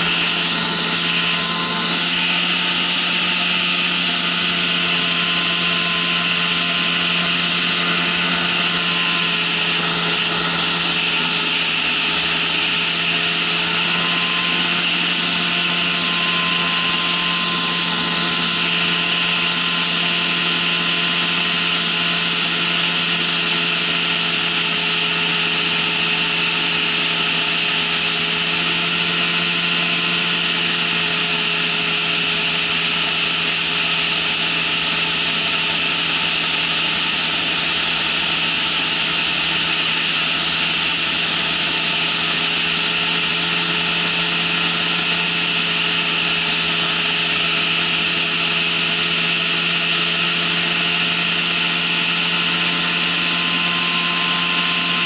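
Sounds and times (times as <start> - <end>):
engine and propeller droning: 0.0 - 55.0.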